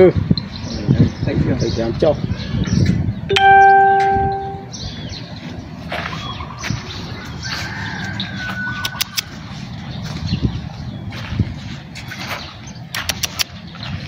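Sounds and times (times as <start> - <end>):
birds chirping: 0.0 - 14.0
sharp clicks: 8.8 - 9.3, 12.9 - 13.5.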